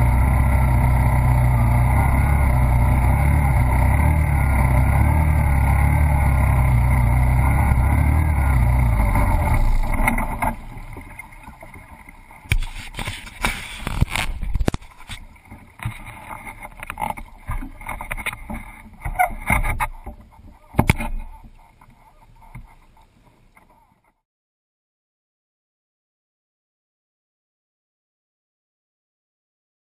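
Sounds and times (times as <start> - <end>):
three-wheeler engine running: 0.0 - 22.8
water splashing and sloshing: 8.7 - 23.8.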